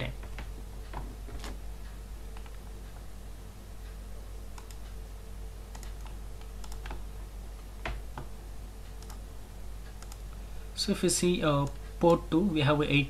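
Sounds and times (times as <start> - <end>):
low electrical hum: 0.0 - 13.0
keyboard and mouse clicks: 2.3 - 2.6, 4.5 - 5.0, 5.7 - 7.0, 8.9 - 9.2, 9.9 - 10.4.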